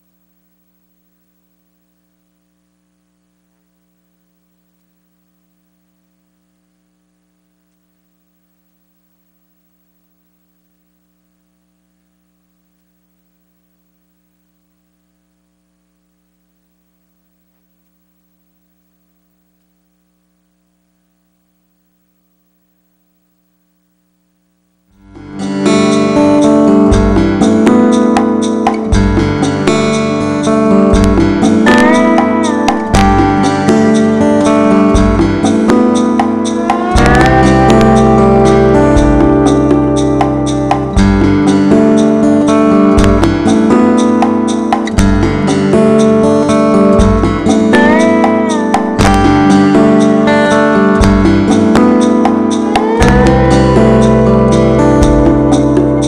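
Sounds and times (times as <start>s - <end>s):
faint electrical hum: 0.0s - 56.0s
guitar theme music: 24.9s - 56.0s.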